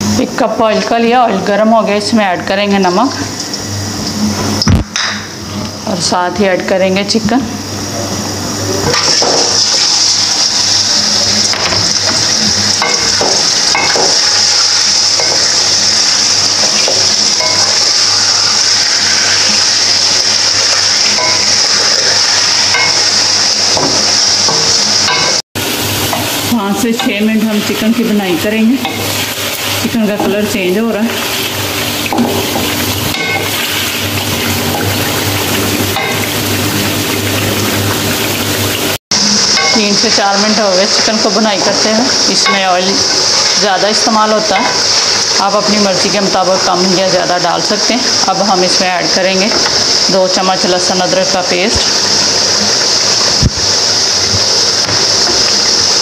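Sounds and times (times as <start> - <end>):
chicken sizzling in hot oil: 7.7 - 56.0
wooden spatula knocking on pan: 12.8 - 14.2, 23.7 - 25.3.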